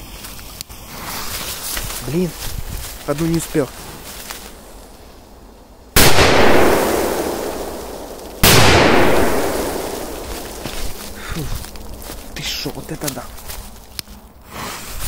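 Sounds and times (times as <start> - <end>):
firecracker bangs with echo: 6.0 - 10.7.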